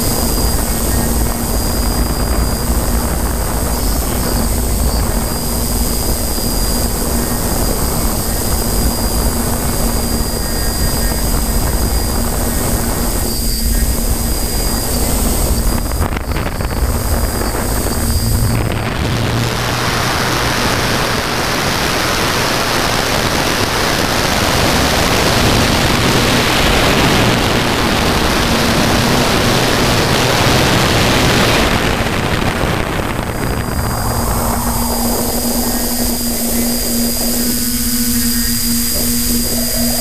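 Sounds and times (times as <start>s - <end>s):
drone motors whining: 0.0s - 40.0s
loud rushing noise: 0.0s - 40.0s.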